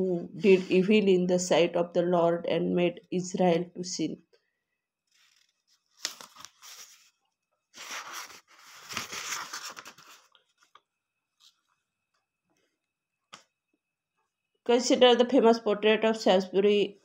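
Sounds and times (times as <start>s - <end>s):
paper page rustling: 5.1s - 11.7s.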